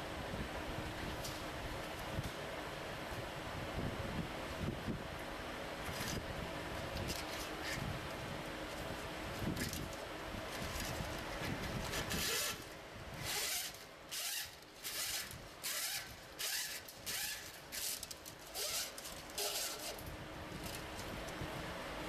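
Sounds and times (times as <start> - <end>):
short ratcheting rasps: 13.2 - 20.1.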